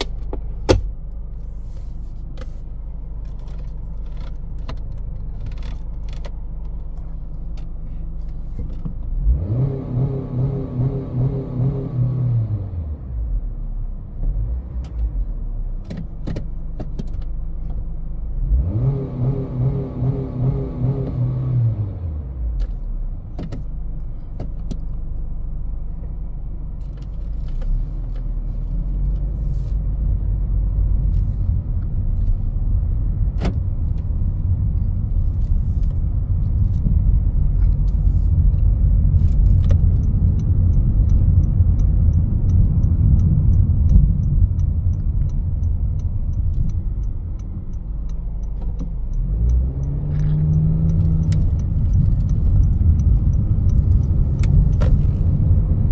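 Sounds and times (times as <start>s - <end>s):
road and tyre rumble: 0.0s - 55.9s
car engine revving: 9.1s - 13.4s, 18.4s - 22.5s, 27.2s - 55.9s.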